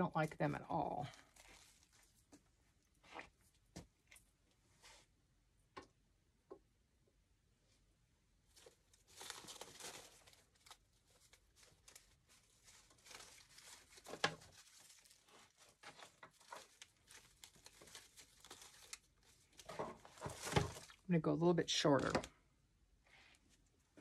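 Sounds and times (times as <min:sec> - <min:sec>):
ribbon and stem rustling: 0:01.0 - 0:02.4, 0:08.6 - 0:21.1.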